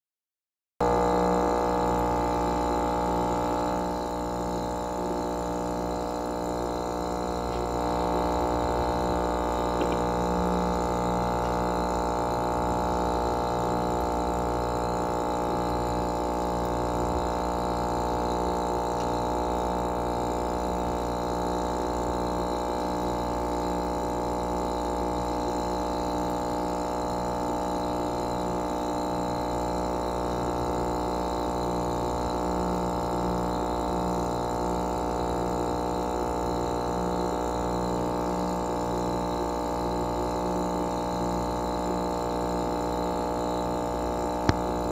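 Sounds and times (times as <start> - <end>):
aquarium pump humming: 0.8 - 44.9.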